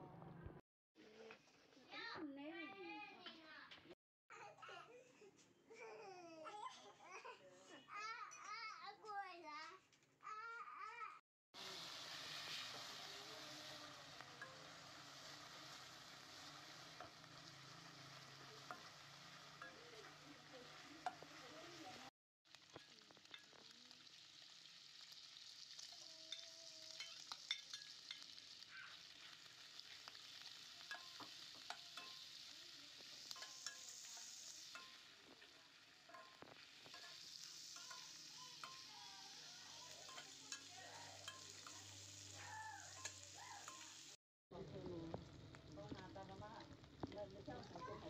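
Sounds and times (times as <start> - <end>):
spatula scraping a pan: 11.6 - 21.6, 25.6 - 44.1
pork frying in a wok: 11.6 - 48.0.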